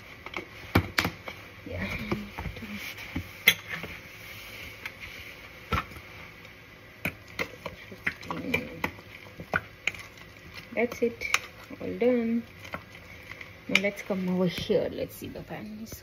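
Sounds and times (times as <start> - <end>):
metal spoon stirring batter: 7.0 - 14.9.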